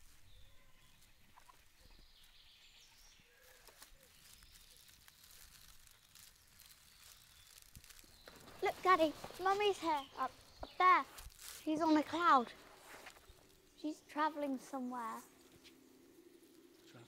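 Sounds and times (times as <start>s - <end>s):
faint bird chirps: 0.0s - 12.0s, 15.6s - 17.0s.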